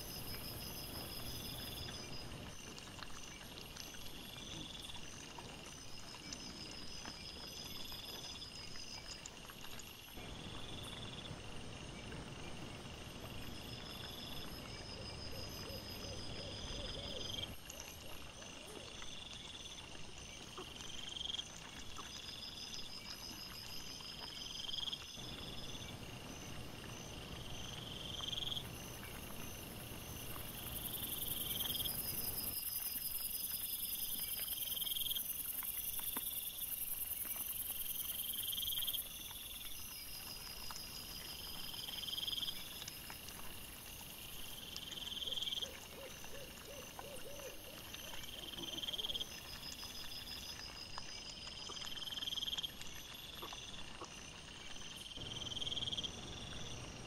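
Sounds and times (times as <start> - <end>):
night insects chirping: 0.0 - 57.0
high pulsed insect trills: 24.8 - 51.4.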